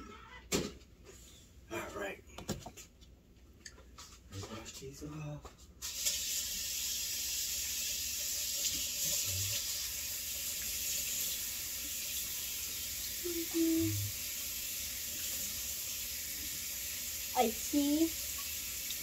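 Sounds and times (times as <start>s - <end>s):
faucet running into colander: 5.8s - 19.0s.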